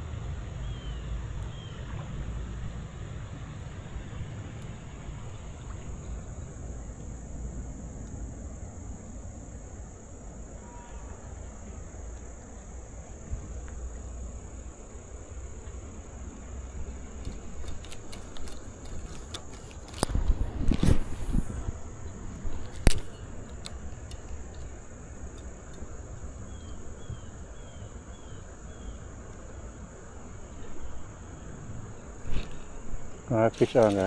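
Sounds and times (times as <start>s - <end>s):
insects buzzing: 0.0s - 34.0s
low outdoor rumble: 0.0s - 34.0s.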